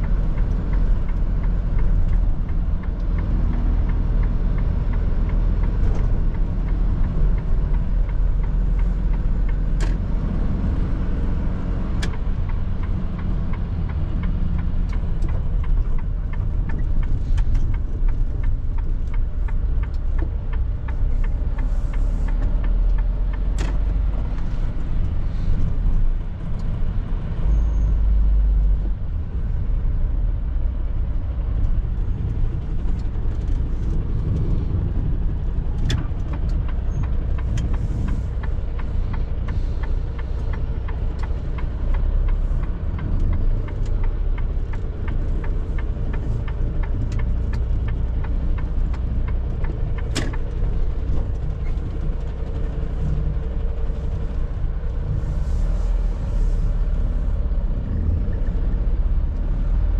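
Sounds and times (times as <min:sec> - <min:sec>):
diesel truck engine rumbling: 0:00.0 - 0:59.9
evenly spaced ticks: 0:12.0 - 0:23.5, 0:32.2 - 0:55.1.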